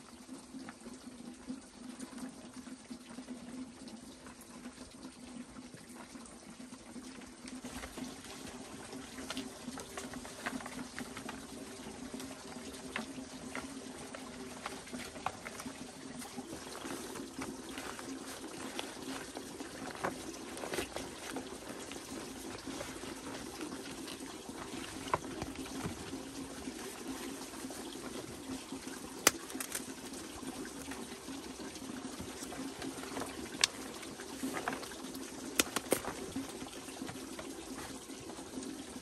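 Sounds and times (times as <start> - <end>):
running water trickling: 0.0 - 39.0
leaves rustling and crackling: 7.6 - 38.6.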